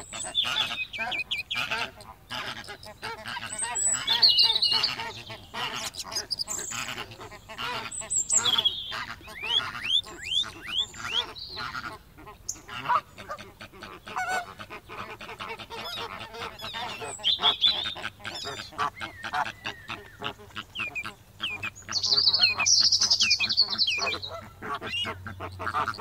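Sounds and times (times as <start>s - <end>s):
ducks quacking: 0.0s - 26.0s.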